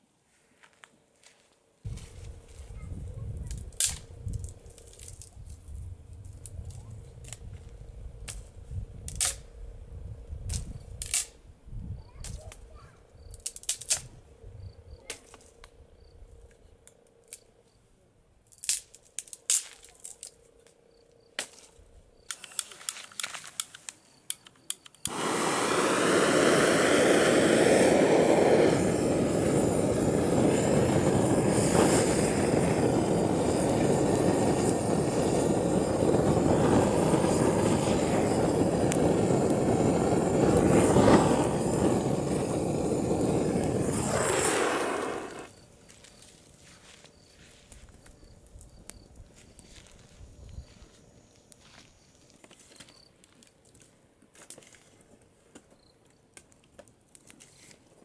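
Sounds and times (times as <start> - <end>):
dry sticks snapping: 18.5 - 20.4
blowtorch hissing: 25.0 - 45.6.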